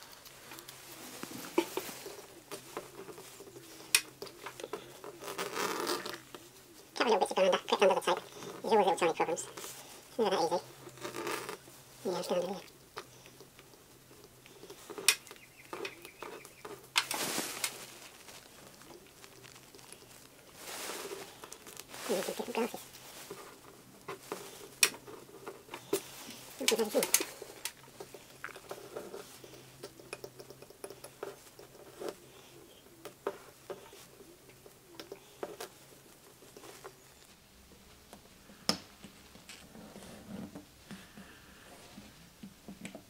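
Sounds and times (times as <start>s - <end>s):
faint steady hum: 0.0s - 43.0s
hands handling tools: 13.0s - 32.2s.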